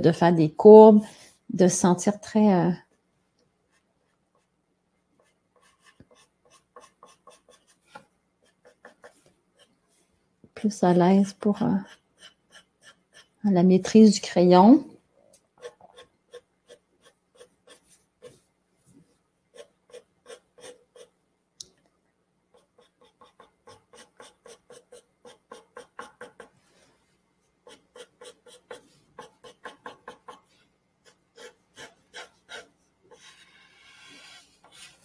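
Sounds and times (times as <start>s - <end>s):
pencil scratching on paper: 5.2s - 10.0s, 10.6s - 13.4s, 15.6s - 18.5s, 19.5s - 21.2s, 22.5s - 26.7s, 27.6s - 35.0s.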